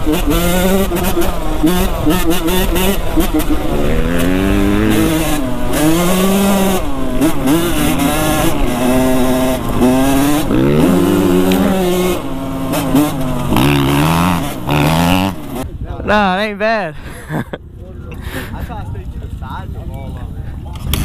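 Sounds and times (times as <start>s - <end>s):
dirt bike engine revving: 0.0s - 15.7s.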